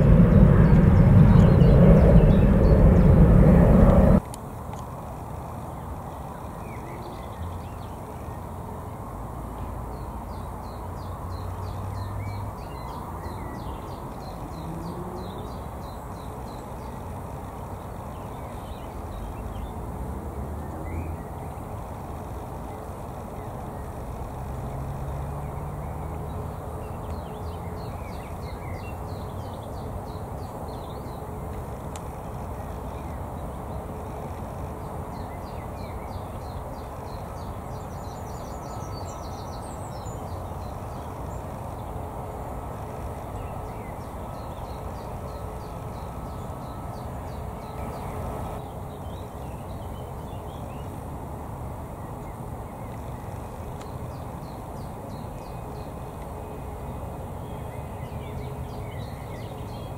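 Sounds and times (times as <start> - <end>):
birds chirping: 0.0 - 4.2
distant jet engines rumbling: 0.0 - 4.3
faint constant hum: 0.0 - 59.9.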